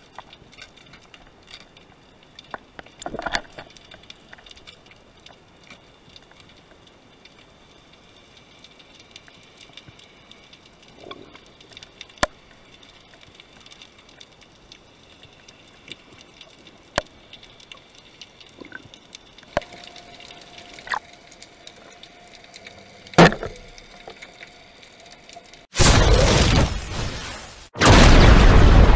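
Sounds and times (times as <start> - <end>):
underwater clicks and knocks: 2.6 - 4.1, 23.1 - 24.2.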